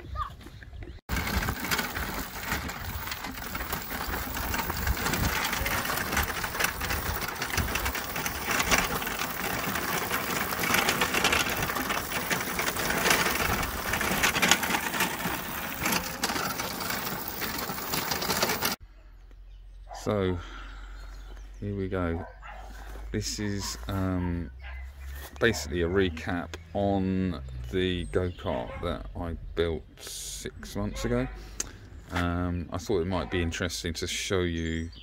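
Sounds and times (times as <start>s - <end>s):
go-kart tyres rattling on gravel: 0.8s - 18.8s.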